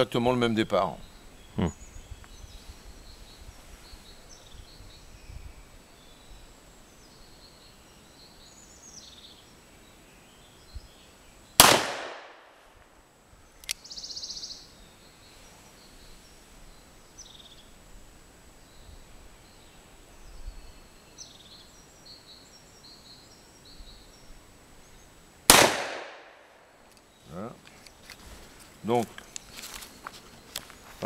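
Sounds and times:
faint bird chirps: 0.7 - 11.6, 13.4 - 17.8, 18.5 - 25.2.

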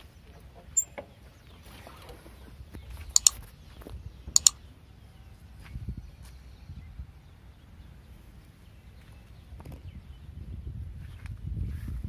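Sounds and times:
mouse clicks: 3.2 - 3.4, 4.4 - 4.6.

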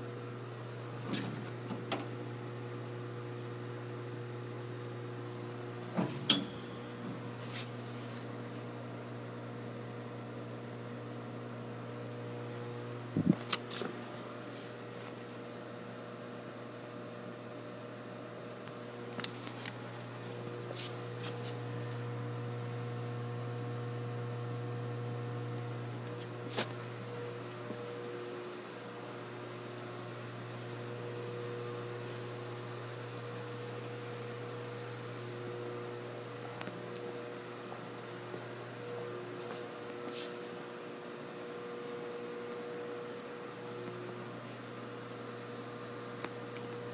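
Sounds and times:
electrical mains hum: 0.0 - 46.9.

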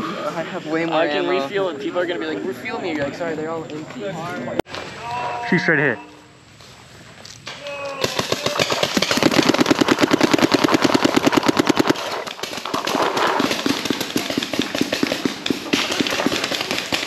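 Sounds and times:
paintball marker rapid firing: 8.0 - 17.0.

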